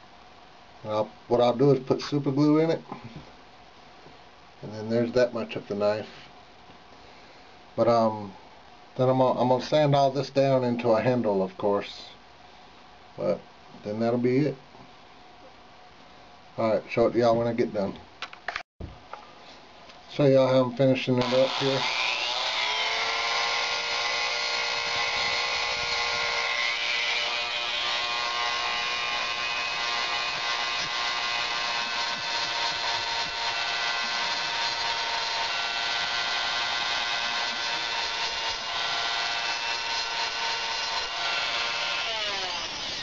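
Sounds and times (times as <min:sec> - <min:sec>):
rotary tool sanding wood: 0:21.2 - 0:43.0.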